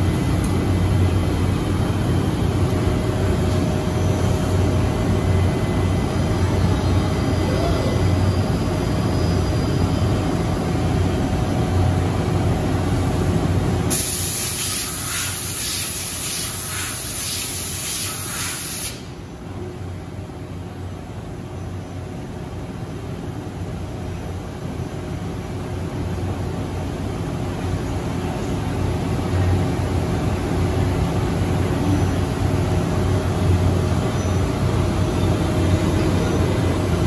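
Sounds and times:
low hum of shop machinery: 0.0s - 37.0s
compressed air hiss: 13.9s - 19.2s.

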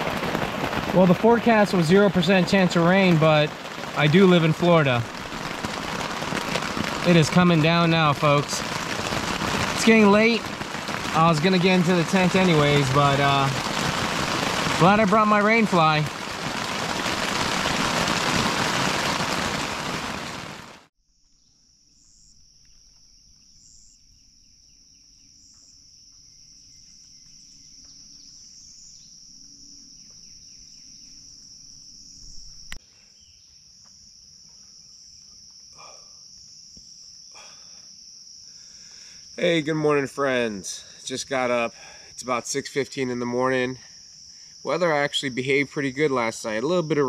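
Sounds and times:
insects chorus: 0.0s - 20.4s, 21.1s - 47.0s
heavy rain on a tent: 0.0s - 20.9s, 37.4s - 37.8s
faint chirps: 21.2s - 39.5s.

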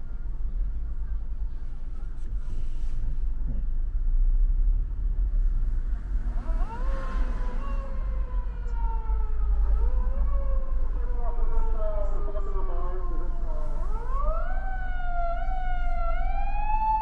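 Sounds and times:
car cabin rumble: 0.0s - 10.3s
police siren wailing: 6.2s - 17.0s.

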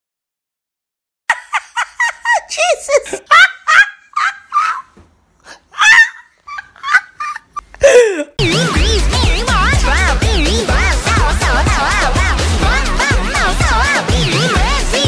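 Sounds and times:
person making squawking yelps: 2.2s - 4.9s, 5.7s - 8.4s.

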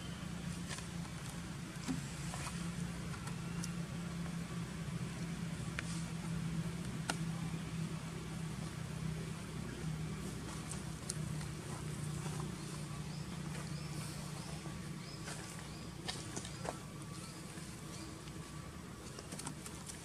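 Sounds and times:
engine humming: 0.0s - 20.0s
faint sharp ticks and snaps: 6.8s - 7.3s, 10.7s - 11.6s.

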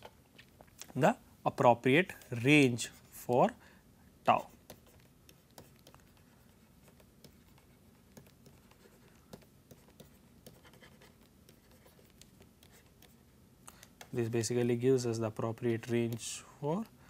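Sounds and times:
stylus scratching on tablet: 4.3s - 13.3s.

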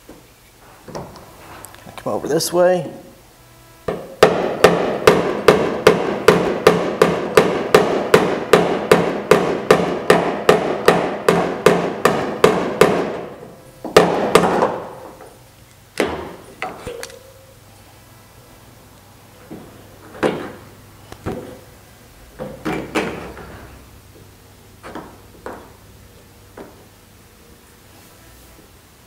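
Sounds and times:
hammer tapping sheet metal: 3.9s - 15.1s.

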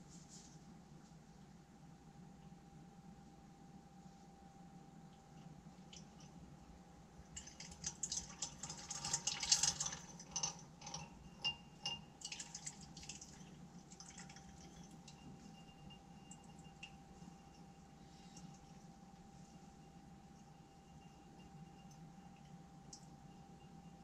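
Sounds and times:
faint hotplate hum: 0.0s - 24.0s
glass clinking and ticking: 9.7s - 18.6s, 20.4s - 24.0s.

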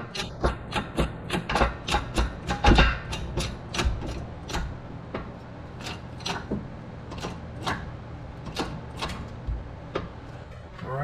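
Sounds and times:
shop press metallic clicks and knocks: 0.0s - 9.3s.

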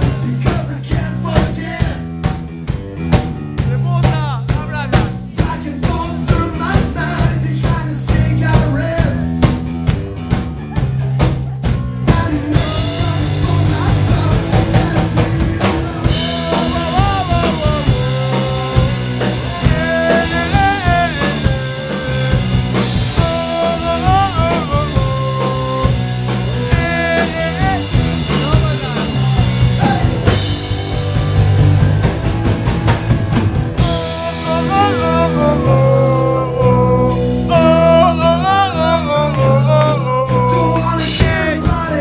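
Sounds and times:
bass line: 0.0s - 42.0s
drum kit: 0.0s - 42.0s
electric guitar with bent notes: 0.0s - 42.0s.

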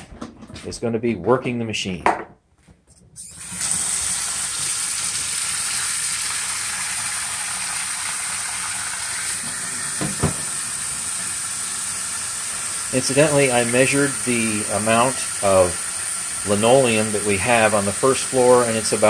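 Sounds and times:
carpet cleaner running with hiss: 9.4s - 19.0s.

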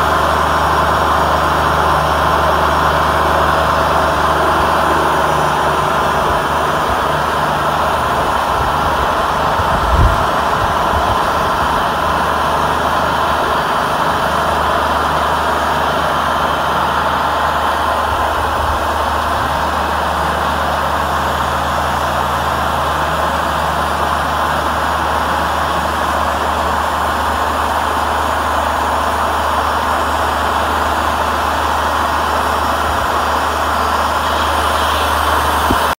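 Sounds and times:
sawmill engine drone: 0.0s - 36.0s
band saw cutting log: 30.4s - 36.0s.

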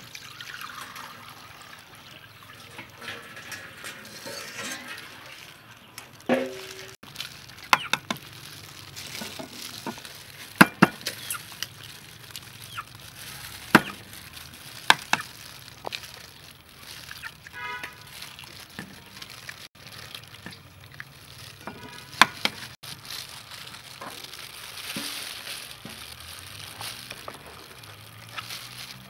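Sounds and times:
soft liquid noise: 0.0s - 29.0s
eggs cracking on metal bowl: 2.6s - 8.5s, 9.1s - 16.0s, 17.3s - 22.8s.

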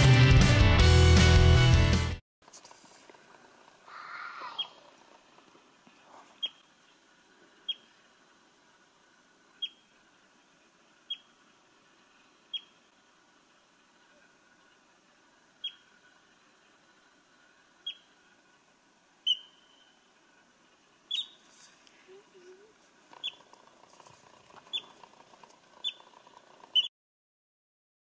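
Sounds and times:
pikas squeaking: 3.9s - 4.9s, 6.2s - 6.7s, 9.6s - 9.9s, 11.0s - 11.4s, 12.5s - 12.9s, 15.6s - 16.0s, 17.8s - 18.2s, 19.2s - 20.1s, 21.1s - 26.9s.

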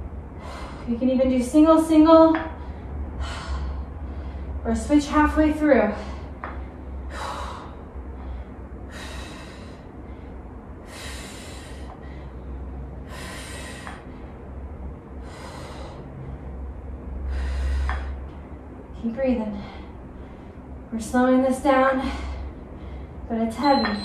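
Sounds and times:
woman breathing hard: 0.2s - 0.9s, 2.5s - 4.6s, 5.9s - 18.5s, 22.0s - 23.3s.

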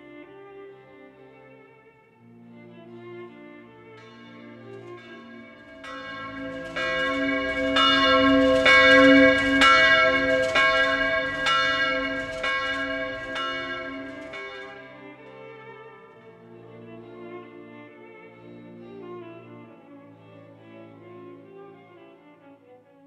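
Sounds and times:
church bells ringing: 4.0s - 16.2s.

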